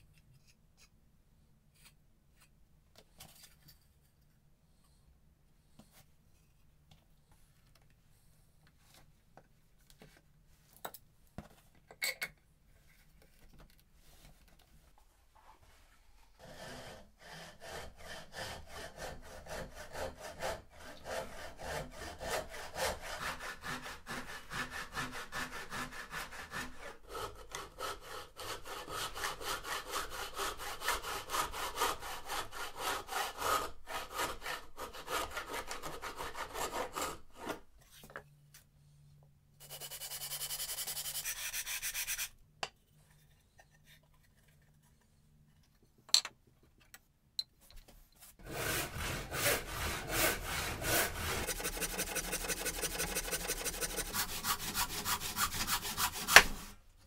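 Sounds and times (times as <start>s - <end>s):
hand saw cutting wood: 16.4s - 37.6s, 48.4s - 56.8s.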